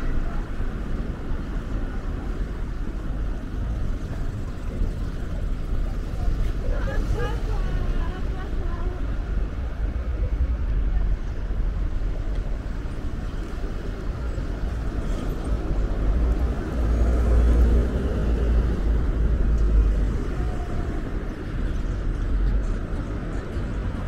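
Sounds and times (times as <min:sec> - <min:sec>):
rumble of passing traffic: 0:00.0 - 0:24.0.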